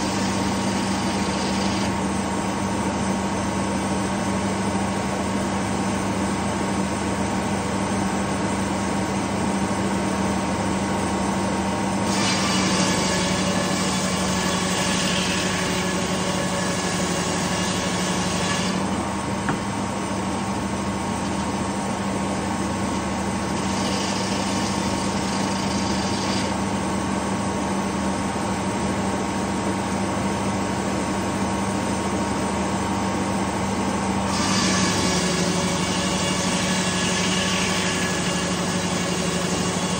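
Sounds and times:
saw blade cutting log: 0.0s - 2.2s, 12.0s - 19.6s, 23.0s - 26.7s, 34.3s - 39.9s.

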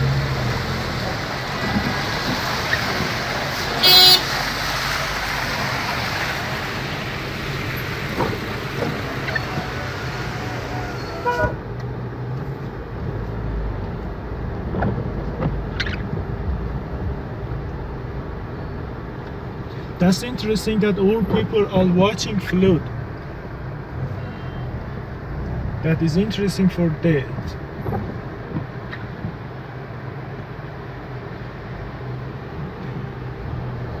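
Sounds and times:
heavy rain: 0.0s - 20.7s
low traffic rumble inside a car: 0.0s - 34.0s
wet city traffic: 0.0s - 34.0s
car horn toot: 3.8s - 4.4s, 10.9s - 11.6s.

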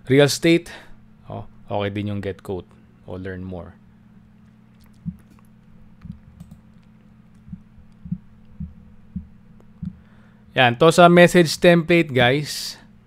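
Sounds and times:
faint low hum: 0.0s - 13.0s
computer mouse clicks: 4.8s - 8.0s.

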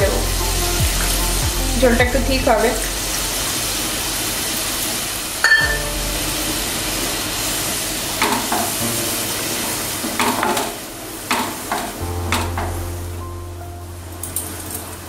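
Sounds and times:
gravy sizzling in a wok: 0.1s - 12.1s.

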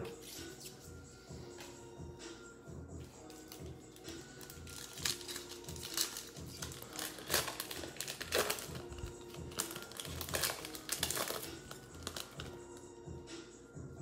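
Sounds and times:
foil wrapper crinkling: 3.5s - 12.6s.

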